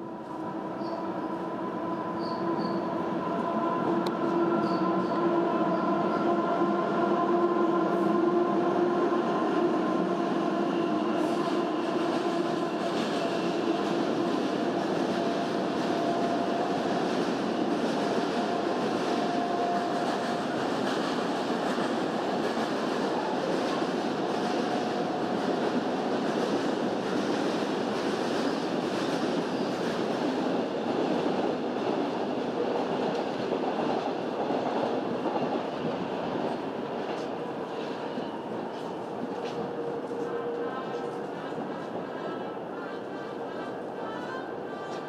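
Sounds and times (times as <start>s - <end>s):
train wheels rumbling on rail: 0.0s - 45.0s.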